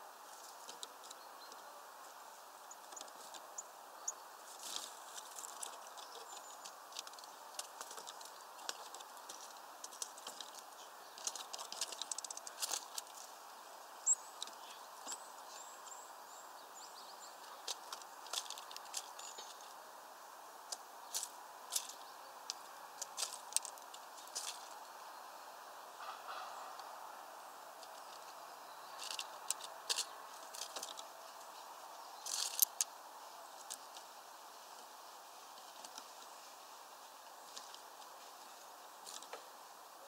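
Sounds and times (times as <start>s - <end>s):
birds pecking at seeds: 0.0s - 39.7s
steady background hiss: 0.0s - 40.0s
high bird chirps: 14.0s - 17.6s.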